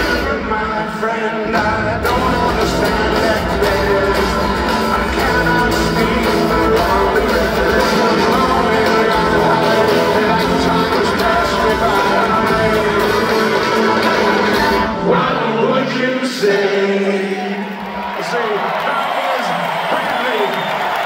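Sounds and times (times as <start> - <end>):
drum kit: 0.0 - 15.2
electric bass: 1.6 - 14.9
strummed acoustic guitar: 1.6 - 15.1.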